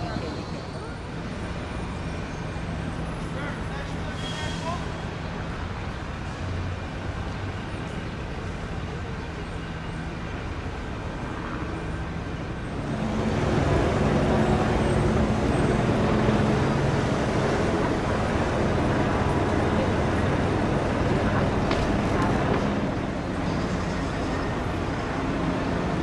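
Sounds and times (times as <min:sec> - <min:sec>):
helicopter drone overhead: 0:00.0 - 0:26.0
traffic noise: 0:00.0 - 0:26.0.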